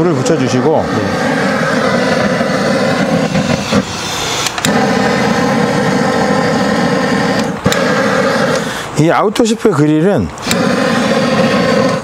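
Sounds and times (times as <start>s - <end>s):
engine idling: 0.0s - 8.9s
sharp clicks: 4.4s - 4.8s.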